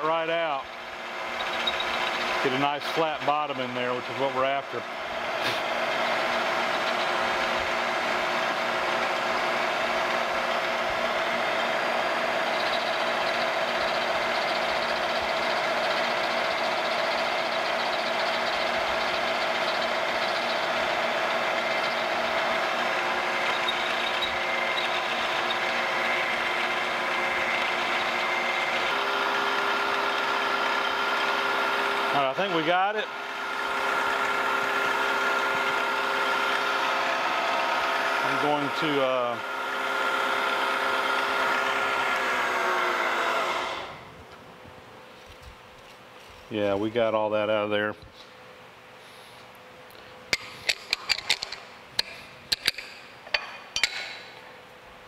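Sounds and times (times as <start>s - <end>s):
end mill cutting brass: 0.0s - 44.0s
milling machine humming: 0.0s - 47.2s.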